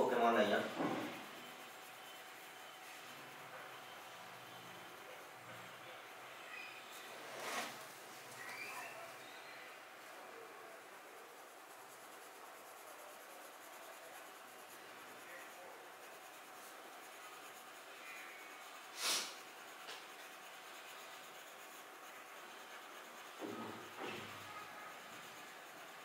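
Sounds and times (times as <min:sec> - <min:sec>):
crayon scratching on paper: 0:00.1 - 0:05.4, 0:10.8 - 0:26.0.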